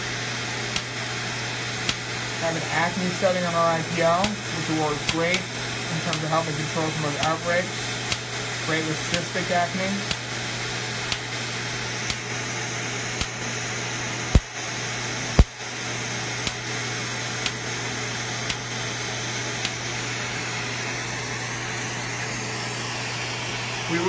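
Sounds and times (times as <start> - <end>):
suction hose hiss: 0.0 - 14.7, 15.3 - 21.1
loud snaps: 0.7 - 1.2, 1.8 - 2.5, 4.0 - 6.4, 7.2 - 8.4, 9.0 - 11.4, 12.0 - 12.4, 13.2 - 13.5, 14.3 - 14.5, 15.4 - 15.6, 16.4 - 16.7, 17.4 - 17.7, 18.4 - 18.8, 19.6 - 20.0
laser handpiece clicking: 5.0 - 5.5, 6.1 - 6.4, 7.2 - 7.4, 8.1 - 8.3, 9.1 - 9.5, 10.1 - 10.3, 11.1 - 11.3, 13.2 - 13.4, 19.6 - 19.8.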